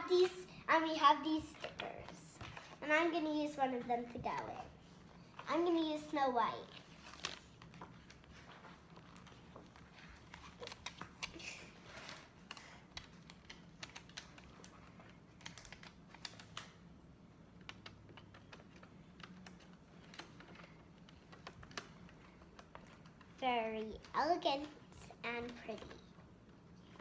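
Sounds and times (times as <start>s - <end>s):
paper rustling: 6.6s - 16.7s
paper handling clicks: 10.2s - 24.8s.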